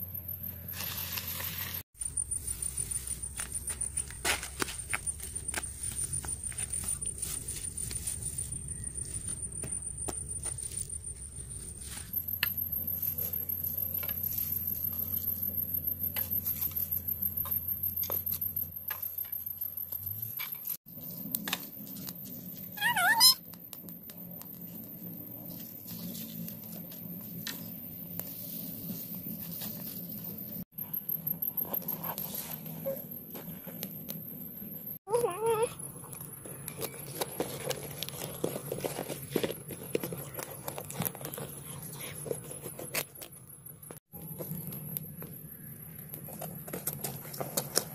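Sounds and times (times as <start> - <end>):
dry grass and sticks rustling: 0.7 - 15.2.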